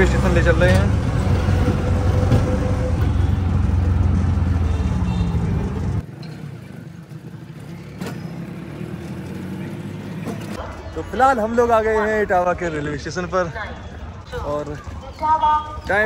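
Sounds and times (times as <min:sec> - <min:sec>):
auto-rickshaw engine droning: 0:00.0 - 0:16.0
outdoor ambience: 0:00.0 - 0:16.0.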